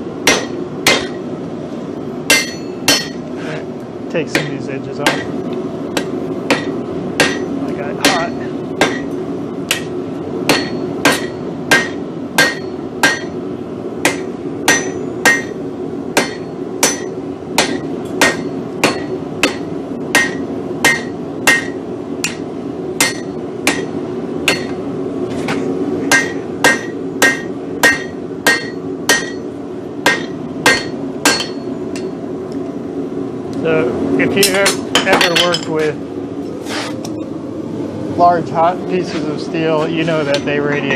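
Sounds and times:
steady low hum: 0:00.0 - 0:40.9
hammer striking steel on anvil: 0:00.2 - 0:01.2, 0:02.3 - 0:03.3, 0:04.3 - 0:13.4, 0:14.0 - 0:15.6, 0:16.2 - 0:24.8, 0:26.1 - 0:32.2, 0:34.4 - 0:35.8.

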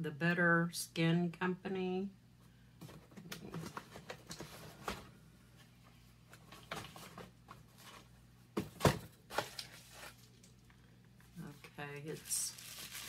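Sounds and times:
rustling of items: 0:02.8 - 0:13.0.

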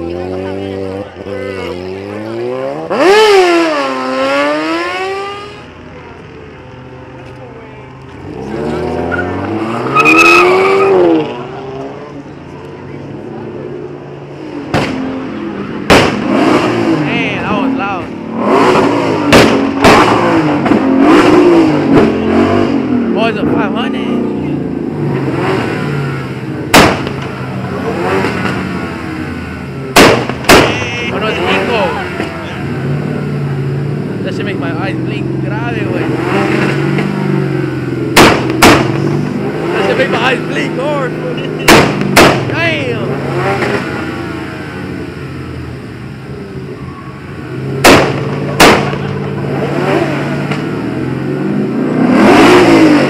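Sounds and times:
car engine revving: 0:00.0 - 0:53.0
loud sharp bangs: 0:14.6 - 0:15.2, 0:15.8 - 0:16.9, 0:18.6 - 0:20.9, 0:26.7 - 0:28.9, 0:29.9 - 0:31.4, 0:38.1 - 0:39.3, 0:41.6 - 0:42.8, 0:47.8 - 0:49.2
loud sharp bang: 0:26.7 - 0:27.3, 0:29.9 - 0:30.9, 0:38.2 - 0:39.1, 0:41.6 - 0:42.6, 0:47.8 - 0:49.2.

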